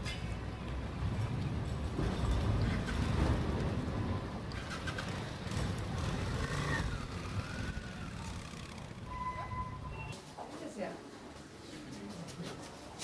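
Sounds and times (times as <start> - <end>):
tram rolling on rails: 0.0 - 10.1
street traffic rumble: 0.0 - 13.0
motorcycle passing: 2.0 - 9.9.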